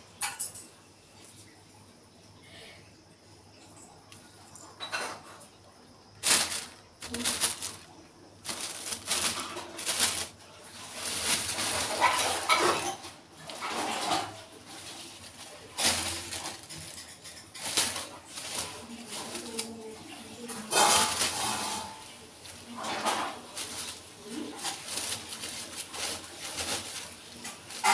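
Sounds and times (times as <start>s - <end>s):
plastic bag crinkling: 6.2s - 27.9s.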